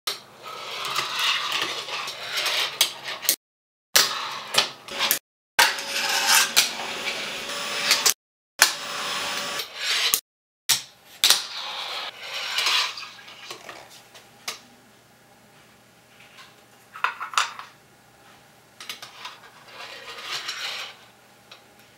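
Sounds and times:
small wheels rolling on tiles: 0.4 - 3.2.

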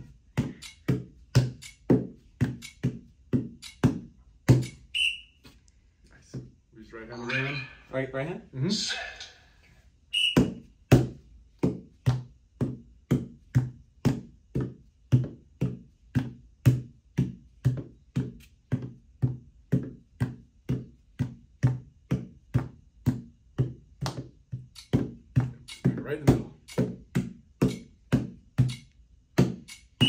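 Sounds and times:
short high beep: 5.0 - 5.3.

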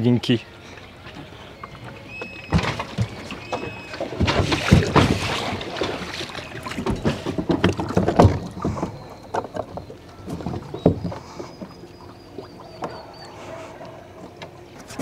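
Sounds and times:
outboard motor clunking: 0.0 - 15.0
thumps of person moving in dinghy: 0.8 - 15.0.

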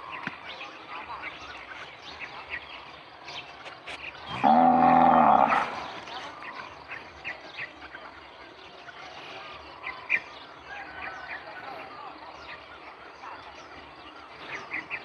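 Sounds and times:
cow mooing: 4.3 - 5.8.

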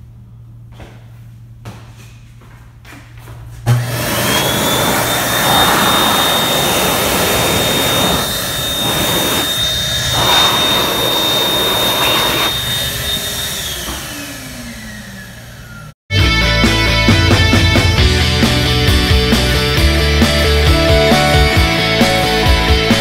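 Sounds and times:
electric hand dryer blowing: 3.7 - 15.9
hand dryer whine: 3.7 - 16.0.

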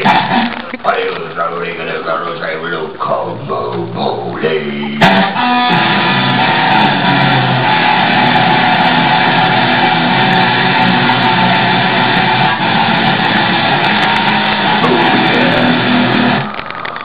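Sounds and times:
guitar noise music: 4.9 - 17.0.

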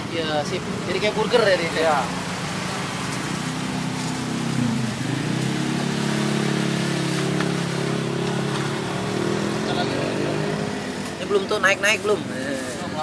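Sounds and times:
motor vehicle engine running: 2.4 - 11.2.

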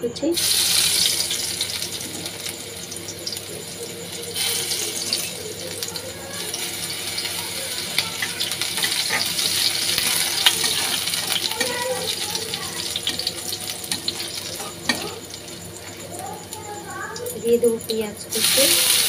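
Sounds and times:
garlic sizzling in hot oil: 0.2 - 19.0
spatula scraping wok: 6.5 - 16.0.

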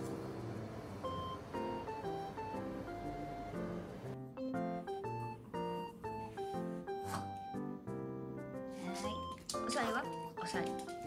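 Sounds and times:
light background music: 0.0 - 11.0.

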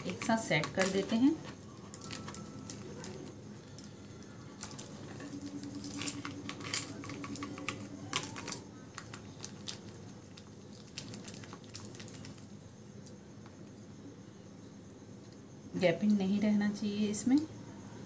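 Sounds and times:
plastic sheet crinkling: 0.0 - 12.5.

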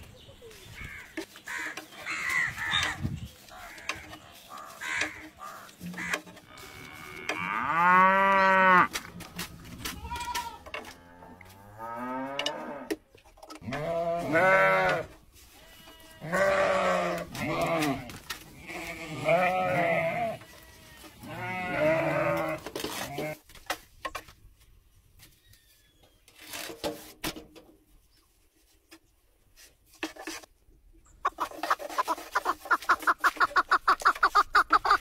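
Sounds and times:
sheep and goats bleating: 9.9 - 12.9, 13.6 - 23.4.

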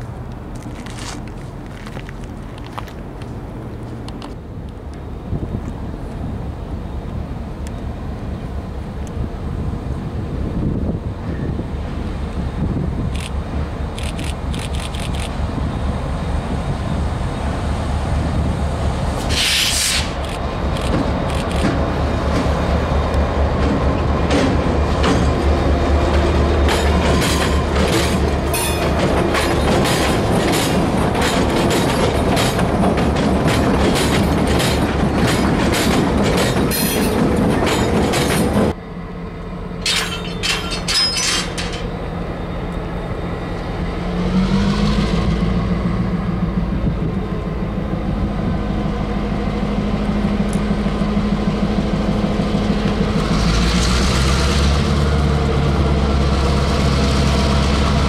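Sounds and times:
diesel locomotives rolling past: 0.0 - 58.0
wheels clacking over rail joints: 19.1 - 38.8, 39.8 - 42.8
locomotive diesel engine running: 20.0 - 58.0.

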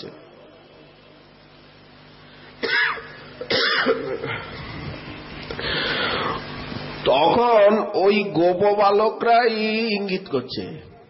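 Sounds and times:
person clearing throat: 2.6 - 4.5
person coughing: 2.6 - 4.5.

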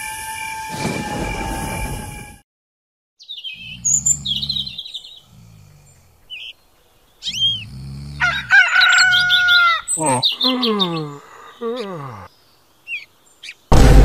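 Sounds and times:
birds chirping: 3.2 - 13.7
rooster crowing: 8.2 - 9.9.

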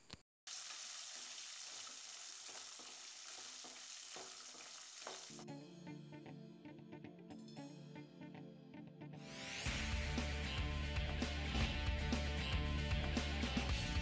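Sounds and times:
oil sizzling: 0.5 - 5.4
background music: 5.3 - 14.0.

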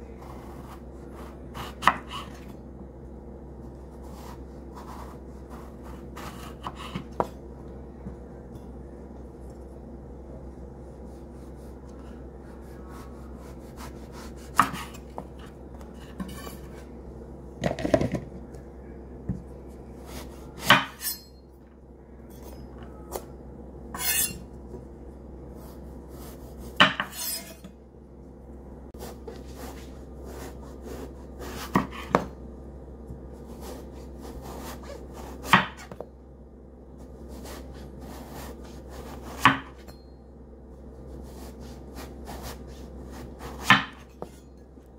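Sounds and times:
low hum: 0.0 - 39.2
knife slicing eggplant: 12.6 - 16.8.

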